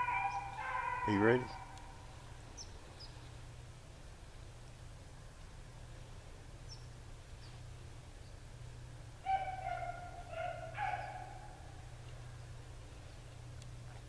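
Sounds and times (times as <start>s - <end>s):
hound baying: 0.0s - 1.9s, 9.2s - 11.8s.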